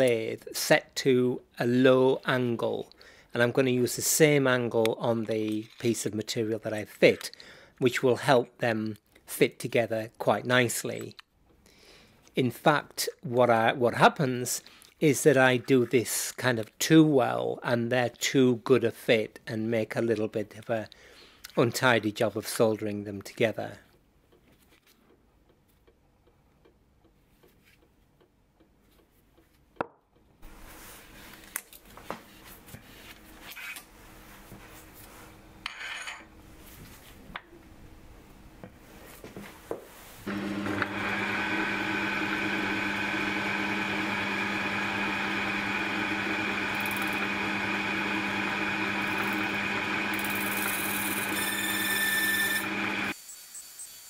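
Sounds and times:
lathe running: 40.3s - 53.2s.

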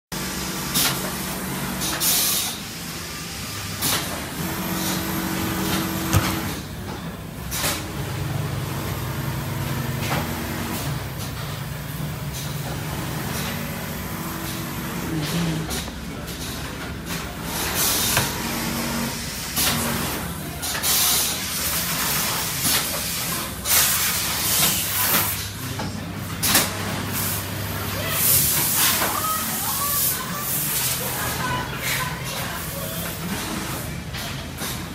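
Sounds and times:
sewing machinery hum: 0.2s - 25.1s.

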